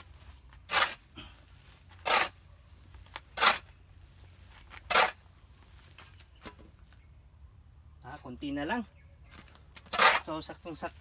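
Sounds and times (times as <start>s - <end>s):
shovel scooping manure: 0.0s - 6.2s, 9.7s - 11.0s.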